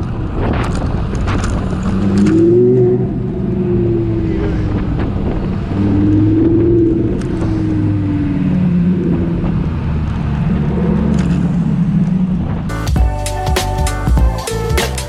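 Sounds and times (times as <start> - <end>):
car engine droning: 0.0 - 15.0.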